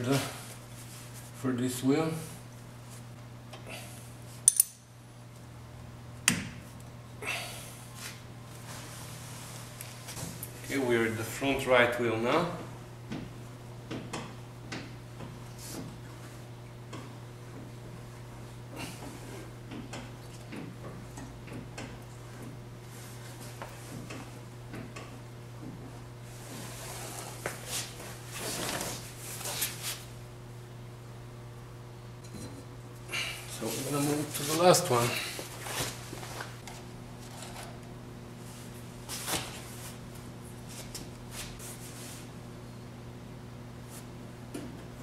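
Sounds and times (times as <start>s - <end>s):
low electrical hum: 0.0s - 45.0s
wrench clinking on metal: 4.5s - 4.8s.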